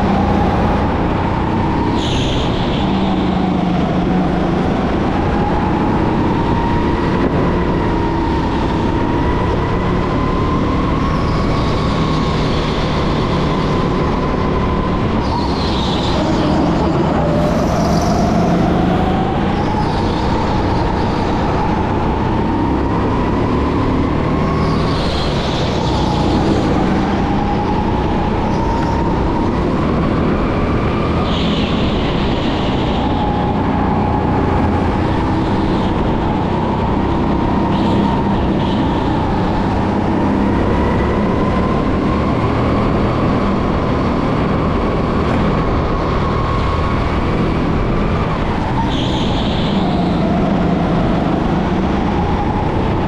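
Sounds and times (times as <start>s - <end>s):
go-kart motor whine: 0.0s - 53.0s
high tire squeals: 15.2s - 21.6s, 48.0s - 51.5s.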